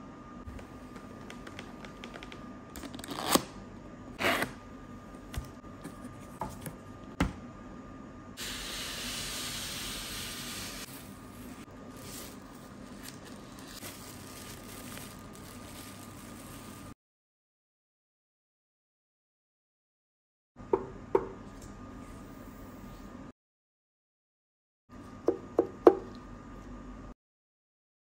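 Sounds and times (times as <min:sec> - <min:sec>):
plastic and styrofoam rustling: 0:10.7 - 0:17.0.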